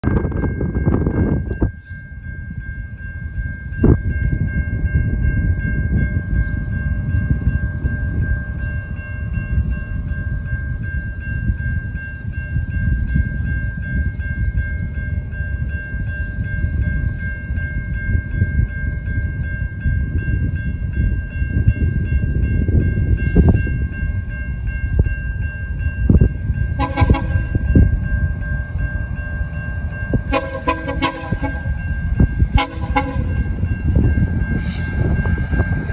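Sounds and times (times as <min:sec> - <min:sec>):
low rumble of locomotive: 0:00.0 - 0:35.9
locomotive air horn chord: 0:26.8 - 0:27.5, 0:30.3 - 0:31.8, 0:32.5 - 0:33.4.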